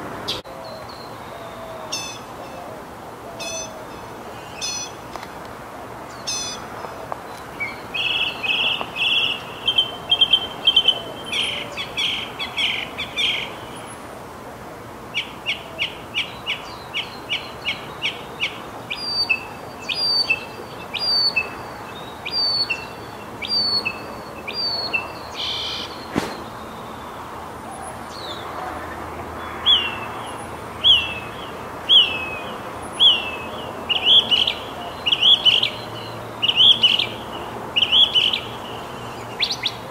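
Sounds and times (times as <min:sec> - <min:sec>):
mockingbird singing varied phrases: 0:15.2 - 0:26.2.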